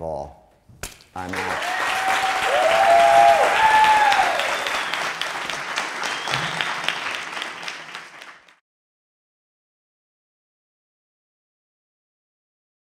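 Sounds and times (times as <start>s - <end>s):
audience applauding: 1.2s - 8.6s
whooping cheers: 1.3s - 5.4s, 6.0s - 7.2s.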